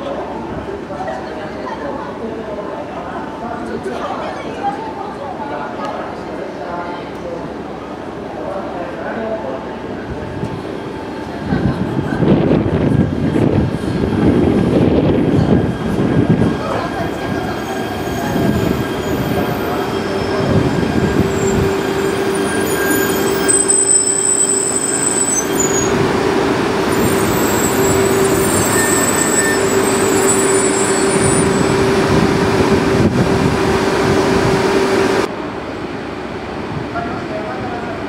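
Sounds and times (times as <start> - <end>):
train cars rolling past: 10.2 - 35.7
high wheel squeals: 15.6 - 32.3.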